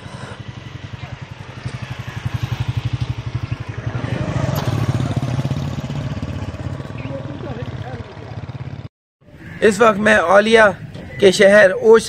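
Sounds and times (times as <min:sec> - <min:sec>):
motorcycle engine puttering: 0:00.2 - 0:08.9.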